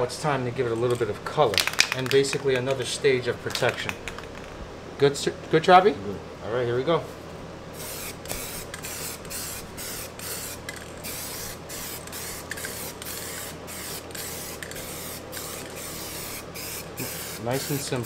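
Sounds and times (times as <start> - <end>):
aerosol spray can hissing: 7.8 - 18.0.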